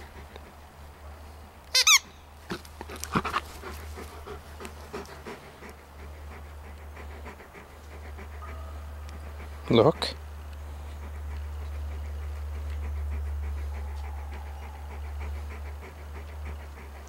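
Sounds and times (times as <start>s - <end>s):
dog squealing: 1.8s - 2.1s.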